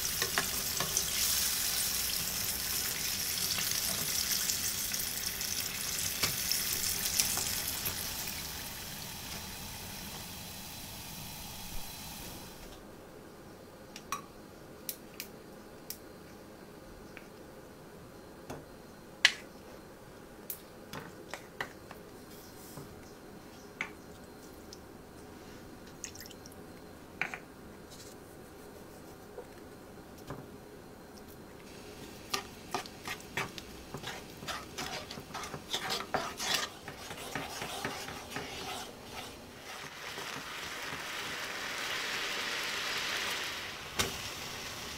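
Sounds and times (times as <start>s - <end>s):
food sizzling in hot oil: 0.0s - 12.7s, 31.7s - 44.9s.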